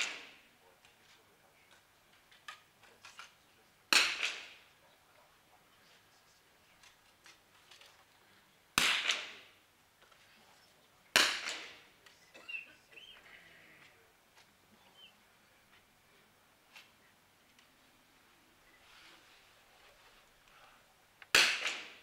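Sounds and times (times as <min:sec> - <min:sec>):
rifle shots: 0:00.0 - 0:00.4, 0:03.9 - 0:04.7, 0:08.8 - 0:09.5, 0:11.1 - 0:11.9, 0:21.3 - 0:22.0.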